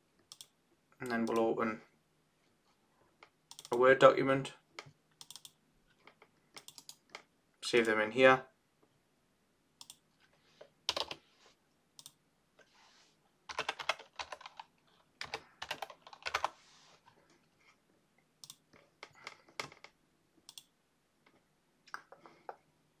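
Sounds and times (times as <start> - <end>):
typing on computer keyboard: 3.5 - 3.8, 4.8 - 5.6, 6.6 - 7.2, 10.9 - 11.2, 13.5 - 16.6, 18.4 - 19.9.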